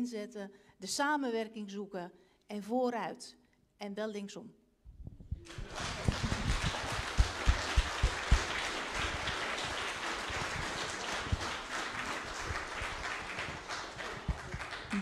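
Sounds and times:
low thumps: 4.9s - 5.5s
audience applauding: 5.4s - 15.0s.

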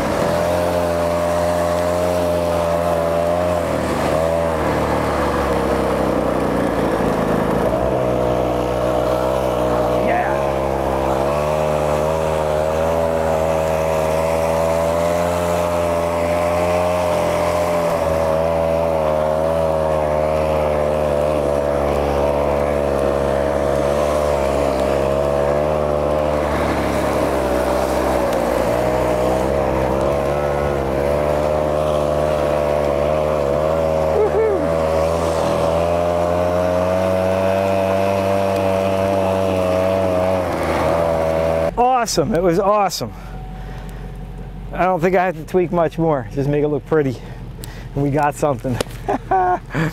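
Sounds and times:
small engine running under load: 0.0s - 49.9s.

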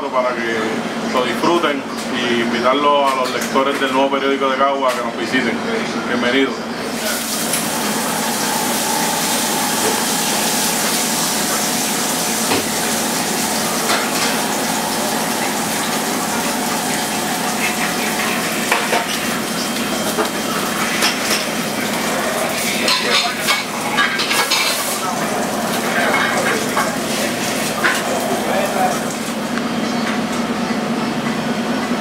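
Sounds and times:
food sizzling in skillets: 6.9s - 29.5s
utensils and pans clinking: 7.0s - 29.3s.

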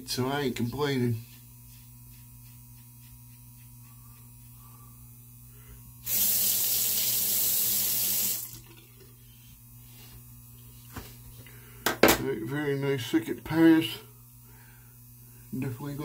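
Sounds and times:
tap water running: 6.0s - 9.2s.

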